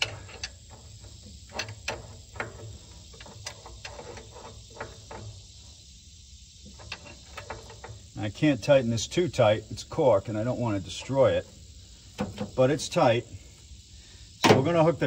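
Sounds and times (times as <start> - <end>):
steady high hiss: 0.0 - 15.0.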